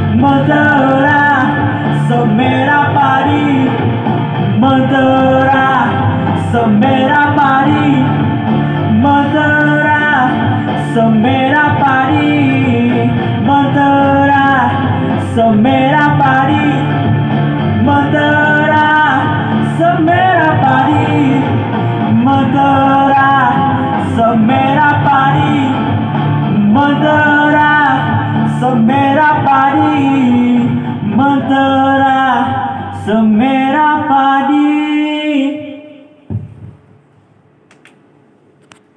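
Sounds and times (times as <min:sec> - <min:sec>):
background music: 0:00.0 - 0:37.0.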